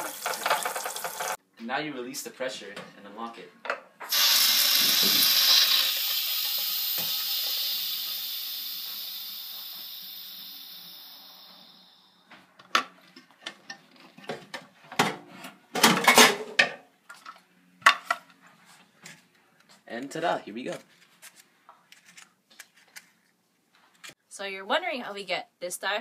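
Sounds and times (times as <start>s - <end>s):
pressure cooker steam hiss: 4.1s - 12.2s.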